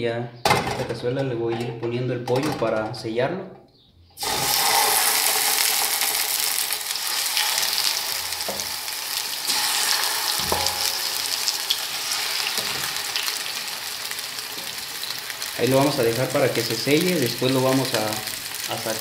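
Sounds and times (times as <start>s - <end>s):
chicken sizzling in hot oil: 4.2s - 19.0s
soft knocks in pan: 10.4s - 11.0s.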